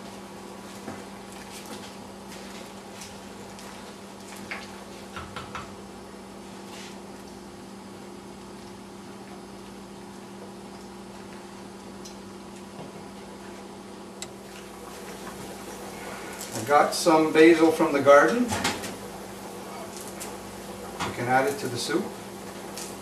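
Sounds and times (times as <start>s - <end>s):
pots simmering: 0.0s - 23.0s
steady low hum: 0.0s - 23.0s.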